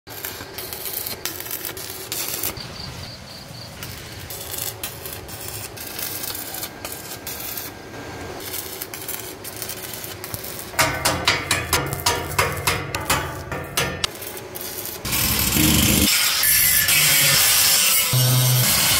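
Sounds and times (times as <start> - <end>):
loud regular tool strokes: 8.4 - 18.9
hand tools scraping and knocking: 10.8 - 14.1.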